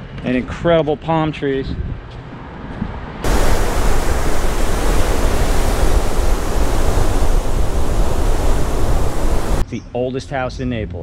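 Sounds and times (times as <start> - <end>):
wind rumble on microphone: 1.6 - 9.6
wind and surf rushing: 3.2 - 9.6.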